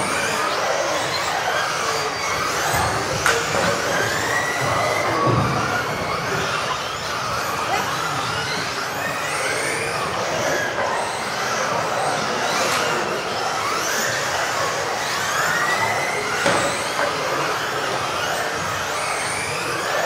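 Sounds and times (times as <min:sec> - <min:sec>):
electric rc car motors whining: 0:00.0 - 0:20.0.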